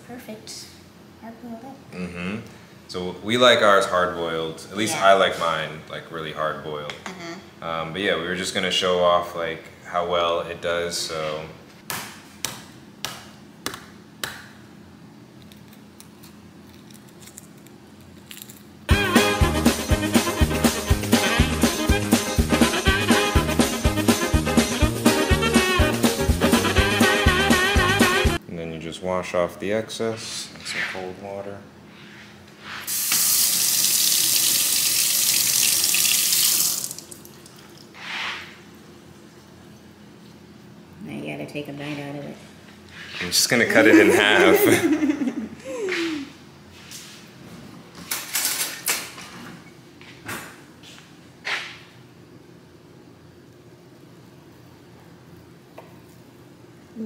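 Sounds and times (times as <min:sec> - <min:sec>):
faucet water splashing in sink: 0:32.9 - 0:38.0.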